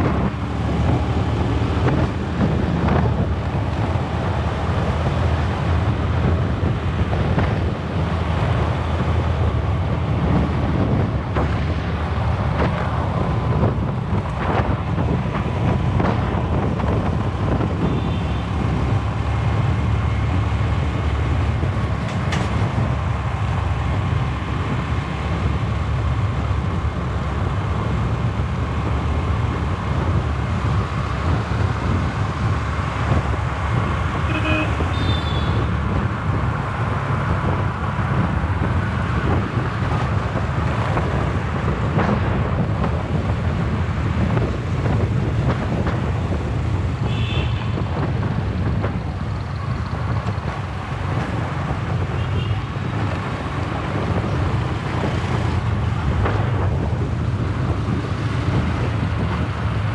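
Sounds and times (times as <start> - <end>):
scooter engine and road noise: 0.0 - 59.9.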